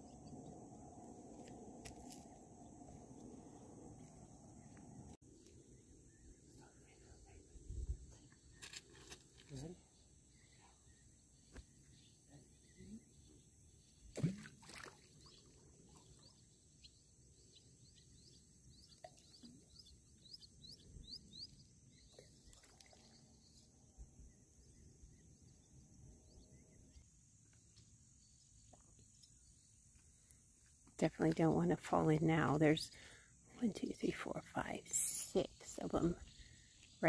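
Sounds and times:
insects droning: 0.0 - 31.0, 32.9 - 37.0.

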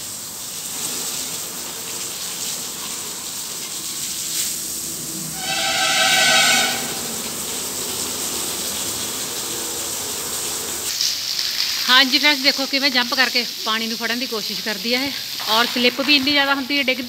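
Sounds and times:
hose spraying water: 0.0 - 17.0
steady pitched tone: 5.4 - 7.6.

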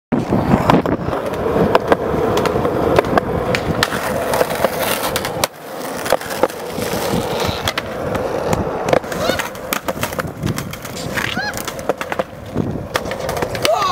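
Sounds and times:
skateboard wheels rolling on concrete: 0.1 - 13.9
skateboard clacking on ground: 0.2 - 13.9.

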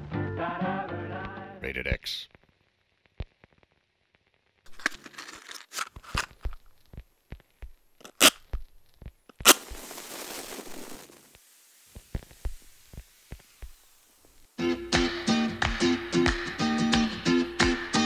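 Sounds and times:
crackles and sharp clicks: 2.3 - 14.6
hiss: 9.4 - 14.6.

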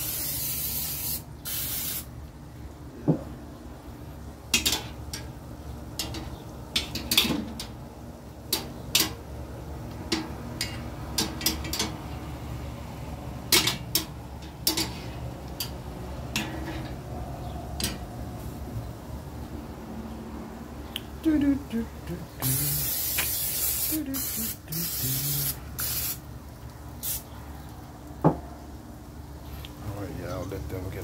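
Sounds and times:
low steady hum: 2.1 - 23.2
metal tongs clinking on grill: 4.5 - 5.3, 6.0 - 7.8, 8.5 - 9.2, 10.1 - 12.0, 13.5 - 17.0.

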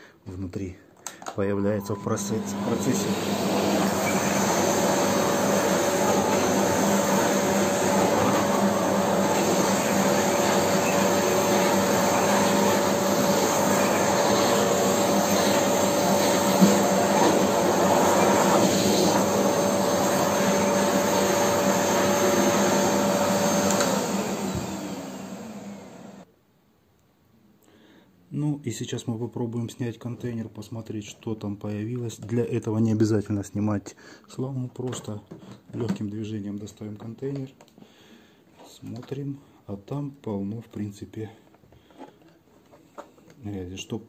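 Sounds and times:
vacuum cleaner whining: 1.8 - 26.3
vacuum motor spinning down: 2.2 - 26.2.

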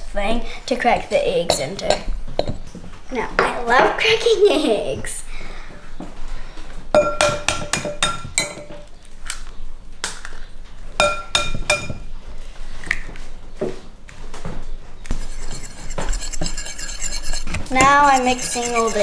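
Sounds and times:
eggs tapping on ceramic bowl: 7.0 - 8.6, 11.0 - 12.0.

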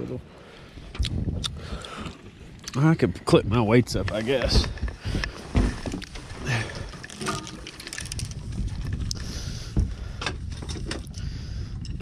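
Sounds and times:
wind rumble: 0.0 - 12.0
microphone handling noise: 4.0 - 12.0.

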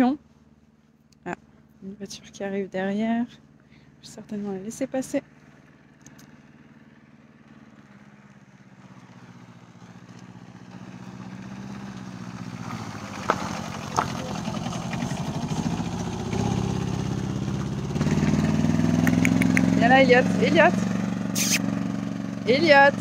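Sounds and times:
car engine approaching: 0.0 - 23.0
short clicks: 19.0 - 19.8, 21.4 - 21.7.

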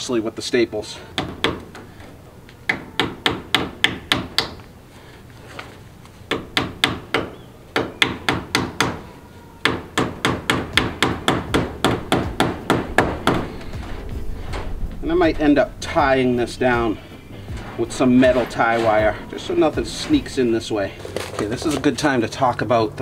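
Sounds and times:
hammer striking staples into wood: 1.2 - 1.8, 2.7 - 4.6, 6.3 - 9.0, 9.6 - 13.5.

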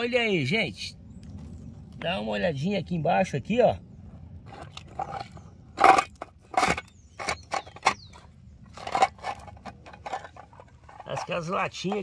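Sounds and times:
scraping dirt and stones: 4.1 - 12.0.

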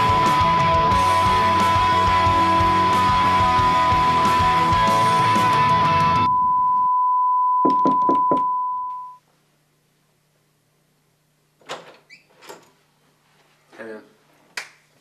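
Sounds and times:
high-pitched tone: 5.2 - 9.2.

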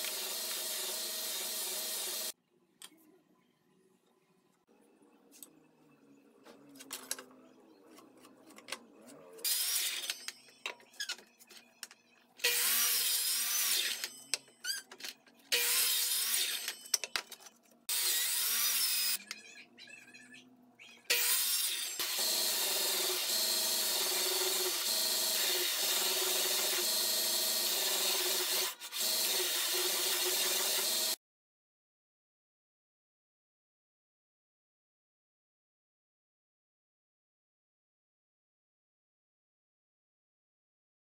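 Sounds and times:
miter saw cutting wood: 0.0 - 2.3, 21.1 - 31.2.

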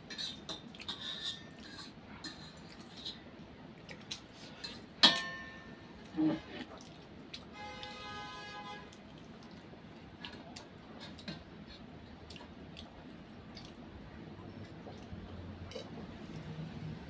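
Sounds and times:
chewing: 6.0 - 7.5, 8.9 - 16.5.

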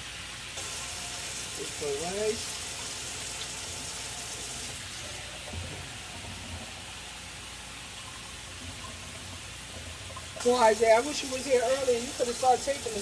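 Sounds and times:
beef sizzling in a frying pan: 0.0 - 5.4, 9.4 - 13.0.

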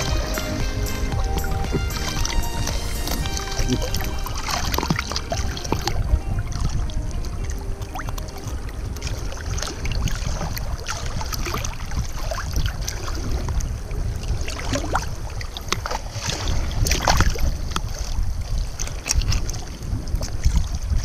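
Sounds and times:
low rumble: 0.0 - 14.4
water sloshing and splashing: 0.0 - 21.0.

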